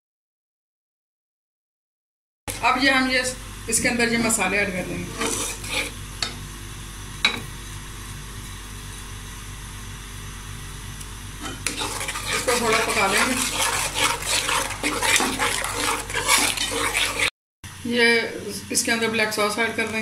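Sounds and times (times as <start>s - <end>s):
spoon stirring thick sauce: 5.1s - 6.0s, 11.4s - 17.3s.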